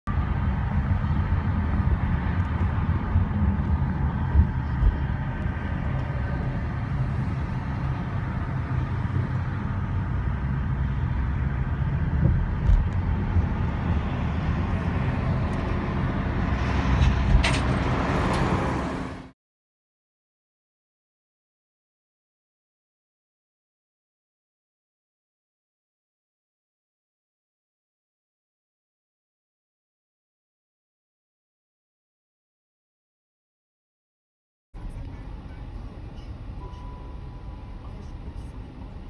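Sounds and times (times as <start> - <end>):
car road and engine rumble: 0.1 - 19.4, 34.8 - 39.0.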